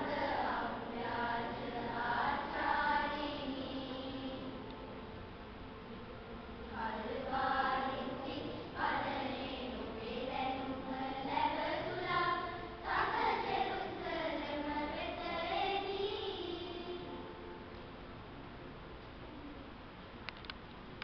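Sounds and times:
children's choir singing: 0.0 - 4.8, 6.7 - 17.4.

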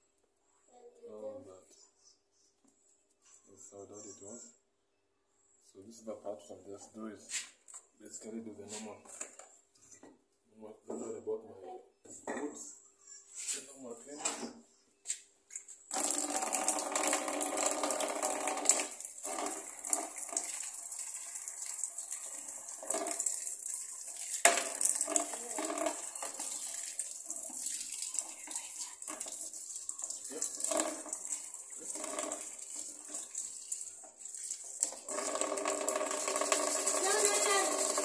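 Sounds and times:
tap water running into basin: 15.9 - 38.0.

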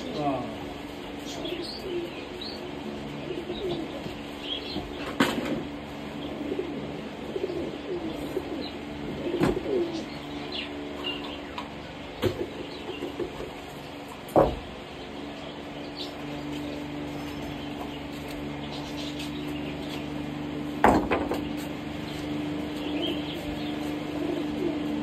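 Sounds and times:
small birds chirping: 0.0 - 25.0.

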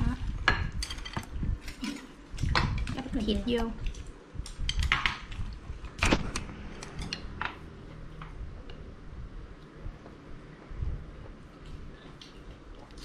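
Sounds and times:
chopsticks and dishes clicking: 6.8 - 7.6.

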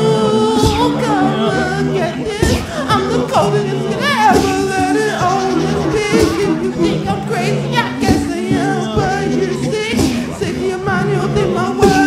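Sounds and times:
backing singers: 0.0 - 12.0
man singing lead: 0.0 - 12.0.

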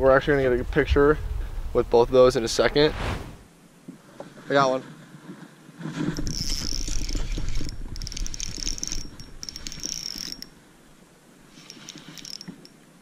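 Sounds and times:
low rumble: 2.6 - 3.5
fishing reel gears whirring: 6.1 - 10.6, 11.5 - 12.8.

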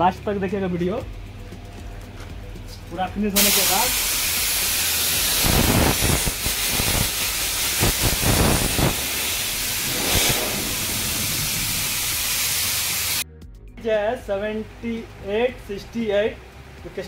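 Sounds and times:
spray gun hissing: 3.4 - 13.2.

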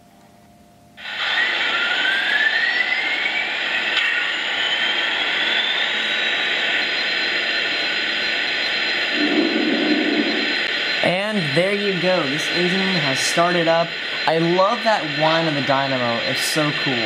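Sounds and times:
dynamo whine rising in pitch: 1.0 - 17.0.

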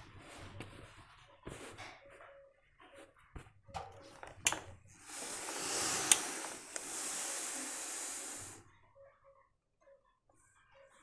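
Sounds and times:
steam iron hissing: 4.5 - 8.6.

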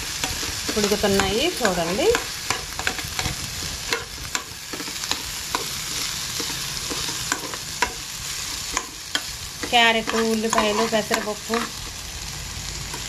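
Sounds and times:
vegetables sizzling in oil: 0.0 - 13.0
metal spatula scraping pan: 0.1 - 12.0.

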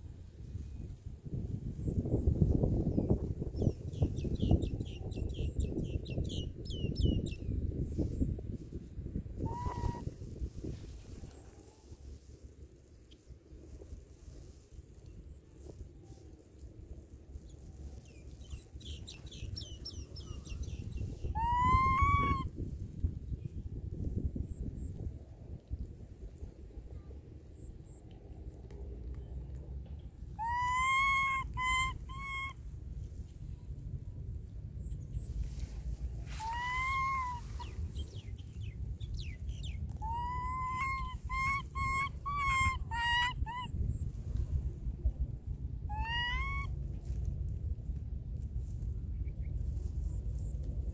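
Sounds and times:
wind rumble on microphone: 0.0 - 50.9
rising animal call: 9.4 - 10.0, 21.3 - 22.5, 30.4 - 32.6, 36.3 - 37.8, 40.0 - 43.7, 45.9 - 46.7
animal chirps: 18.8 - 22.5, 30.4 - 32.6, 36.4 - 37.8, 40.0 - 43.7, 45.9 - 46.7
low rumble: 31.2 - 41.8, 43.5 - 50.9.

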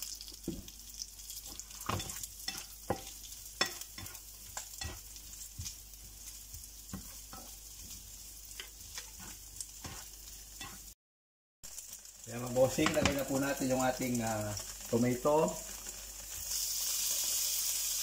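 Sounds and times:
food sizzling in oil: 0.0 - 11.0, 11.6 - 18.0
spatula scraping a pan: 1.4 - 11.0.

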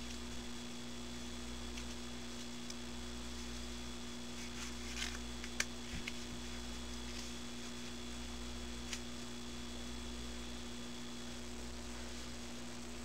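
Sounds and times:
steady electrical hum: 0.0 - 13.0
playing cards clicking and sliding: 1.7 - 3.7, 4.3 - 8.0, 8.8 - 9.1.

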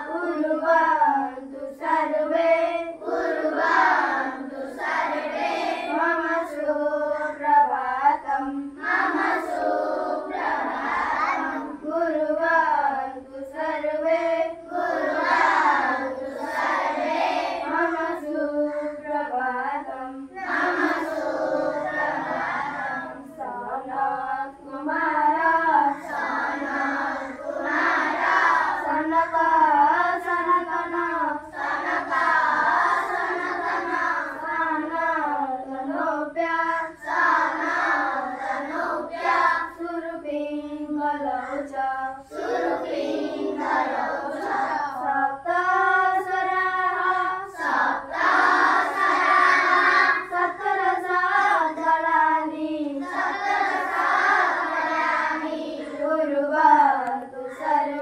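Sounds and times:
children singing in unison: 0.0 - 58.0.

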